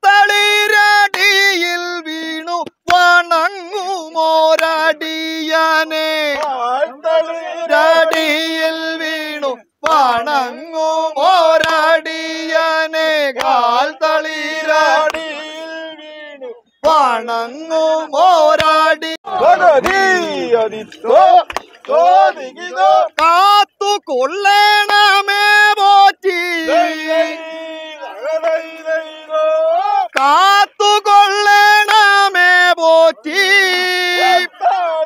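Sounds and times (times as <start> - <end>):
chanting boat song: 0.0 - 35.0.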